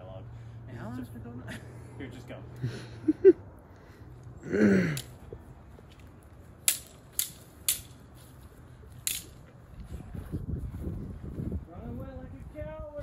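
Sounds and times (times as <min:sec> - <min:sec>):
prop sword rods clacking: 0:04.9 - 0:05.2, 0:05.9 - 0:08.2, 0:08.9 - 0:09.6.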